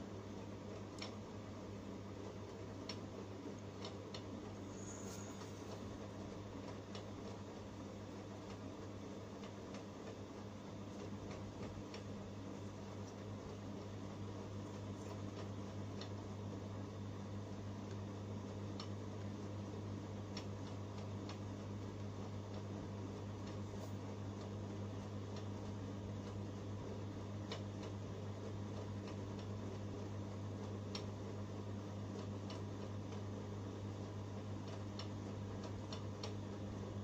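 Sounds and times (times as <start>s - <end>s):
low electrical hum: 0.0s - 37.0s
faint light ticks: 18.8s - 19.0s, 30.9s - 31.1s.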